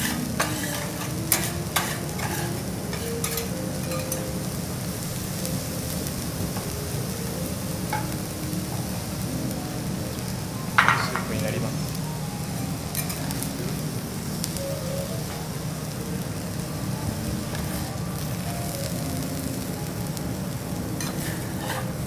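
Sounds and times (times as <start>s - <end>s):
metal spatulas scraping: 0.0s - 4.3s, 21.0s - 22.0s
rice sizzling on a griddle: 0.0s - 22.0s.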